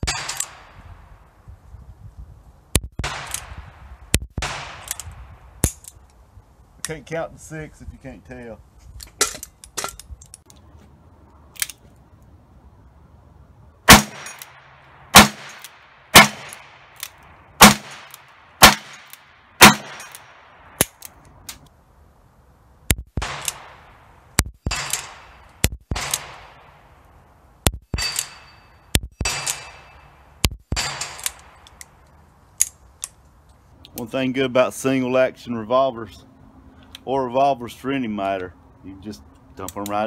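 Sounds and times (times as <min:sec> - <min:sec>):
metallic ring: 0:27.9 - 0:30.2.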